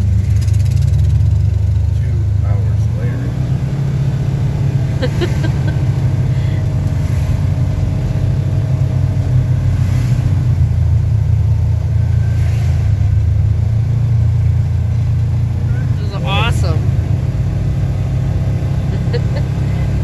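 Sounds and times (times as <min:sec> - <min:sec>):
vehicle engine low drone: 0:00.0 - 0:20.0.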